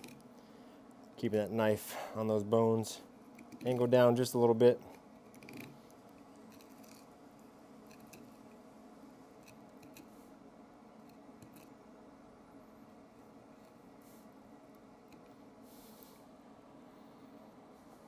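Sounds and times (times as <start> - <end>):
blade clicking and scraping on bones: 5.2 - 7.1, 7.8 - 8.4.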